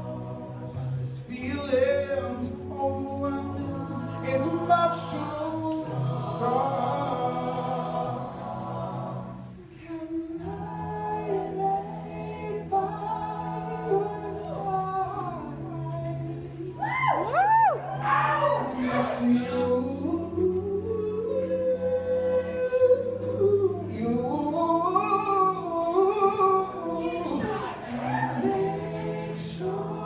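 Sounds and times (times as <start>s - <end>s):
ensemble singing chords and bass: 0.0s - 30.0s
male lead voice singing: 18.6s - 28.6s.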